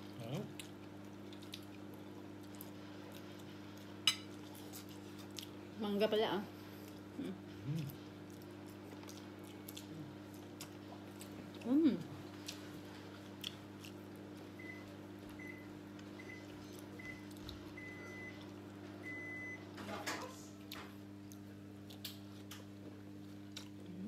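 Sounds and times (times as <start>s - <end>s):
steady low hum: 0.0s - 24.0s
soft eating clicks: 0.3s - 5.6s, 7.7s - 11.7s, 12.3s - 14.4s, 20.6s - 24.0s
faint electronic appliance beeps: 14.6s - 19.9s.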